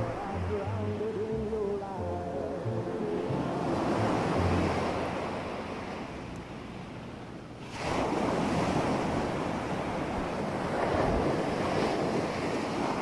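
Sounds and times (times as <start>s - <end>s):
ocean waves washing onto beach: 2.9s - 13.0s.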